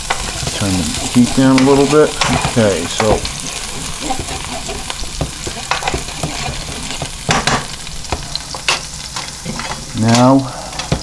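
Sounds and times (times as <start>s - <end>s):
garlic sizzling in oil: 0.0s - 11.0s
wooden spoon scraping a pan: 0.0s - 11.0s.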